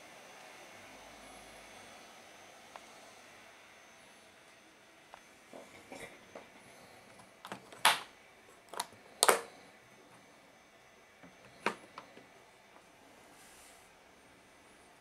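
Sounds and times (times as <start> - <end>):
case catches clicking and knocking: 7.4 - 8.1, 8.7 - 9.5.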